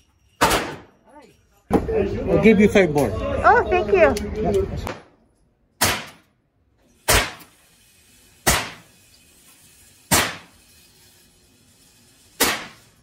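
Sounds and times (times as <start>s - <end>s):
rifle shots echoing indoors: 5.8s - 6.3s, 12.4s - 12.8s.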